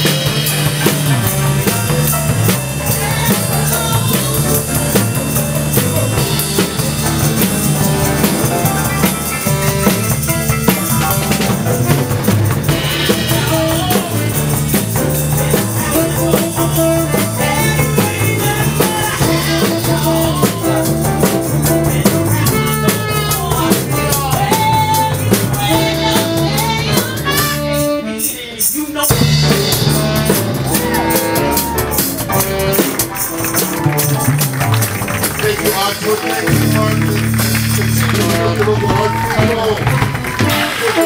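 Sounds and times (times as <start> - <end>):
walking bass line: 0.0 - 28.0, 29.1 - 41.0
blues band playing: 0.0 - 41.0
saxophone: 0.0 - 41.0.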